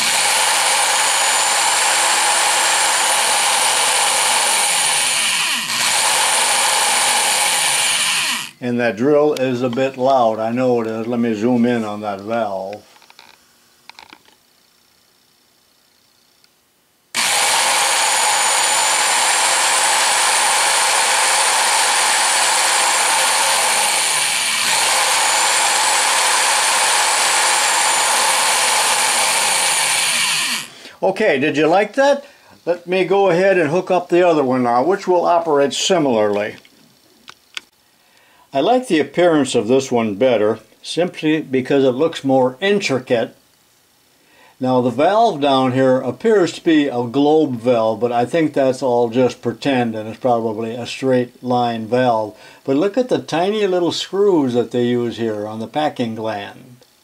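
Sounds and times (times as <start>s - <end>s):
electric drill running: 0.0s - 8.6s, 17.1s - 30.8s.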